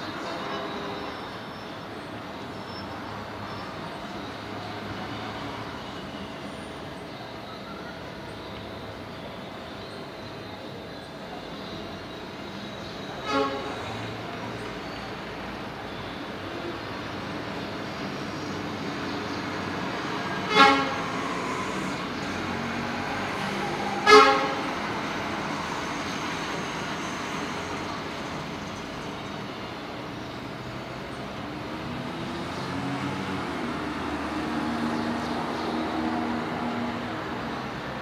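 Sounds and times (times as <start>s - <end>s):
city street traffic: 0.0s - 38.0s
vehicle horn tooting: 13.2s - 13.9s, 20.4s - 21.4s, 24.0s - 24.8s.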